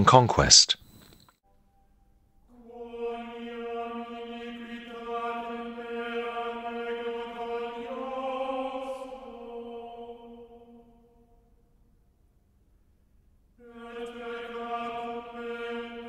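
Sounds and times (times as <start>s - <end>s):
voices singing chant: 2.5s - 11.5s, 13.6s - 16.0s.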